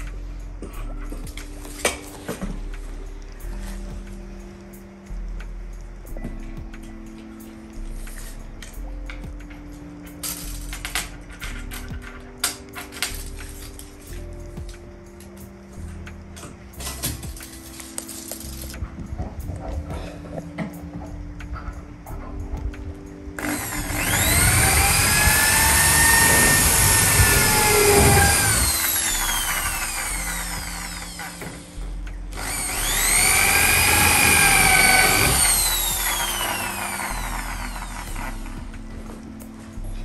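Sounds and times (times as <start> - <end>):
electric drill whining: 23.4 - 38.6.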